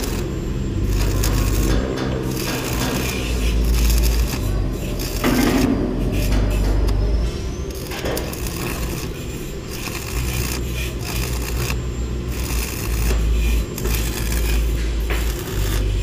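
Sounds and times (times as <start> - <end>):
welding arc crackling and hissing: 0.0 - 16.0.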